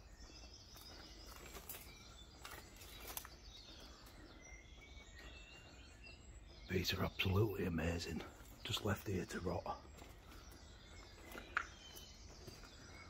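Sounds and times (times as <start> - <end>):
distant birds chirping: 0.0 - 13.0.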